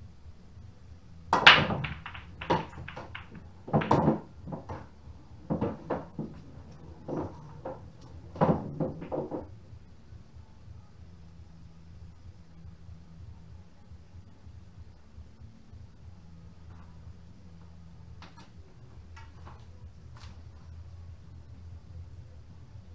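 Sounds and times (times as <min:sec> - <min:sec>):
cue ball cracking into rack: 0:01.3 - 0:09.5
pool balls clacking: 0:01.3 - 0:09.6, 0:18.2 - 0:20.6.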